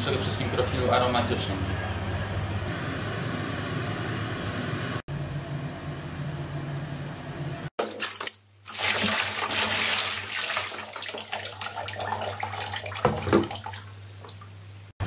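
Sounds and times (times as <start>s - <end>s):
water pouring into container: 7.8s - 14.4s.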